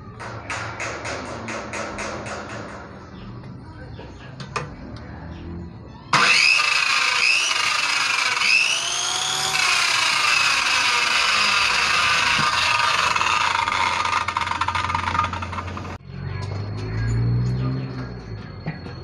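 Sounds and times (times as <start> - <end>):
circular saw whining: 6.1 - 19.0.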